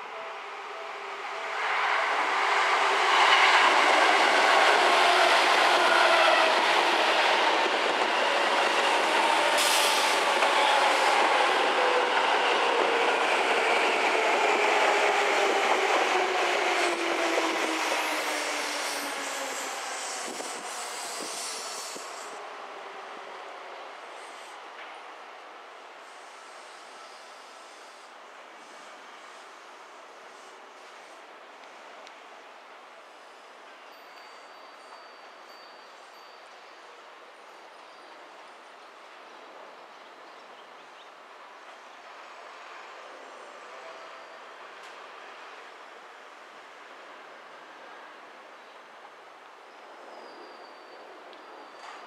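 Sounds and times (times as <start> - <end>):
train wheels on rails: 1.5 - 23.1, 41.6 - 47.0, 50.0 - 52.0
brief hiss: 9.5 - 10.9, 18.7 - 22.4, 26.0 - 31.9.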